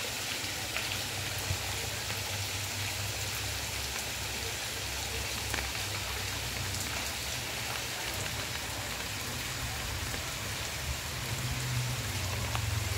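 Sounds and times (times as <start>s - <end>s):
heavy rain on cobblestones: 0.0s - 12.9s.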